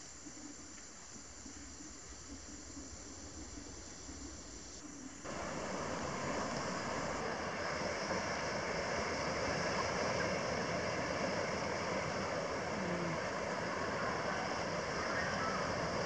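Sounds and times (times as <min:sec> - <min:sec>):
forest hiss: 0:00.0 - 0:16.0
surf washing on beach: 0:05.2 - 0:16.0.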